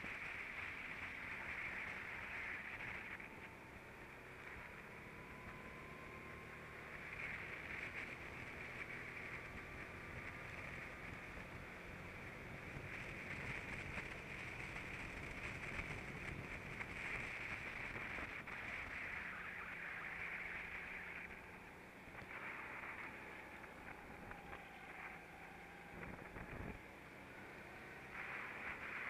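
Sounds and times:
go-kart engine running: 0.0s - 29.0s.

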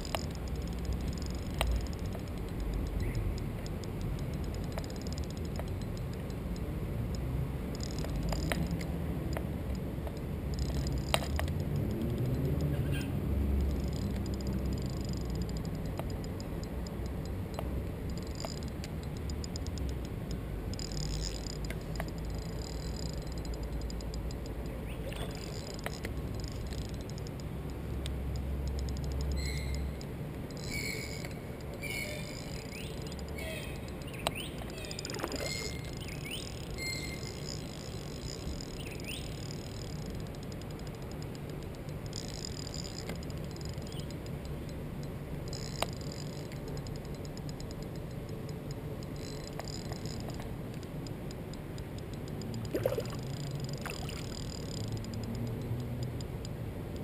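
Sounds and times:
low steady rumble: 0.0s - 57.0s
short chirping bird calls: 24.7s - 25.6s, 29.4s - 30.0s, 30.6s - 37.6s, 38.6s - 39.5s.

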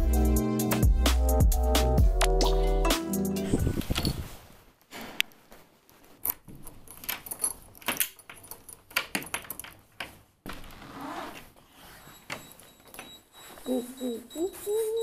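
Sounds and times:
key worked in door lock: 6.3s - 10.0s
keys jangling: 6.7s - 9.8s.

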